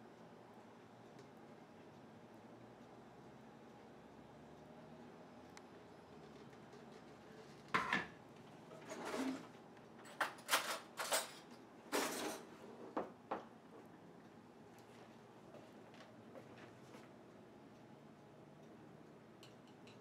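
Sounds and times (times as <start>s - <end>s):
jar and glass clunking on countertop: 7.8s - 8.2s.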